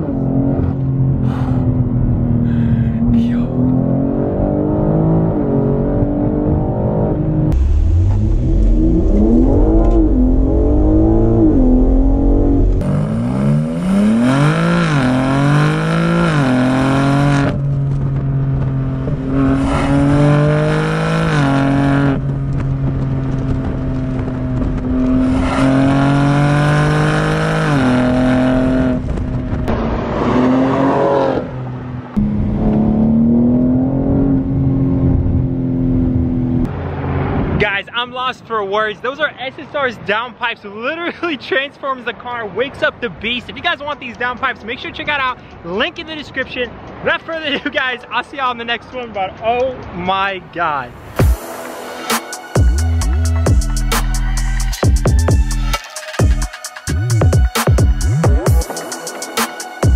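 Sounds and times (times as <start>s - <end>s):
car exhaust revving: 0.0s - 37.4s
car cruising steadily: 0.0s - 37.7s.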